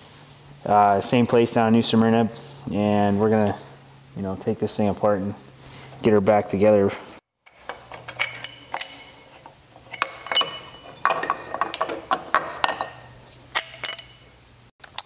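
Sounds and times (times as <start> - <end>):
wrench clinking on metal engine: 7.5 - 14.3.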